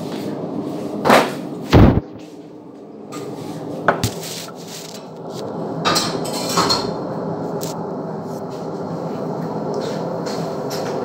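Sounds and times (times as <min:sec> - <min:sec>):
steady low hum: 0:00.0 - 0:11.0
heavy thump: 0:01.7 - 0:02.2.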